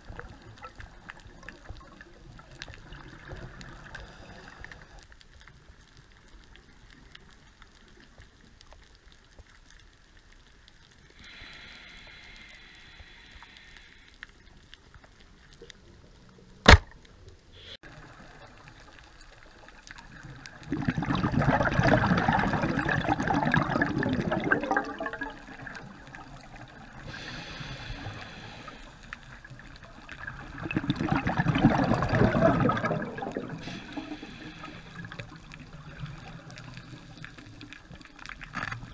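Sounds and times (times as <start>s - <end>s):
regulator hiss on inhale: 3.9s - 5.0s, 11.0s - 14.4s, 17.5s - 17.8s, 27.0s - 29.4s, 33.6s - 35.4s
sharp click: 16.7s - 17.0s
rush of exhaled bubbles: 20.2s - 38.9s.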